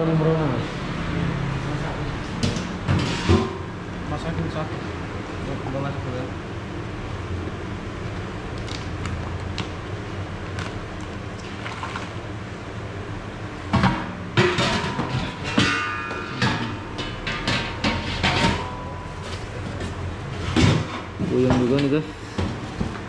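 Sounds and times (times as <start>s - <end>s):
low background hum: 0.0s - 23.0s
utensils knocking and clattering: 13.7s - 23.0s.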